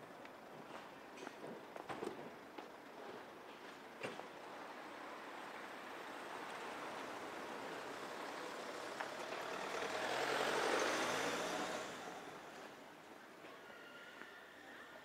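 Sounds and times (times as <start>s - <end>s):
vehicle driving past: 5.0s - 12.8s.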